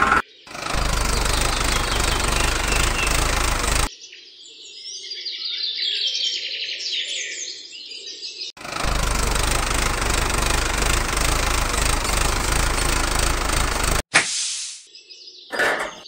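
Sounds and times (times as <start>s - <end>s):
birds chirping: 0.0s - 3.9s
tractor engine rumbling: 0.0s - 3.9s, 8.6s - 14.0s.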